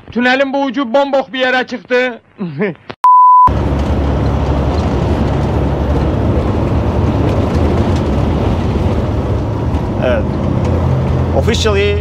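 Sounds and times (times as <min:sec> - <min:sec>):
truck engine and tyre drone: 0:03.5 - 0:12.0.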